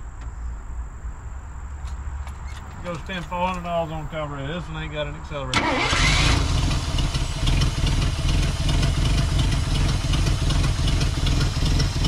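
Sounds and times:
truck engine running: 0:05.5 - 0:12.0.

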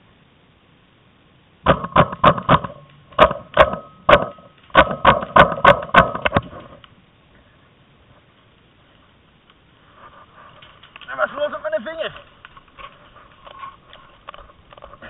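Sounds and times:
paintball marker shots: 0:01.7 - 0:06.8.

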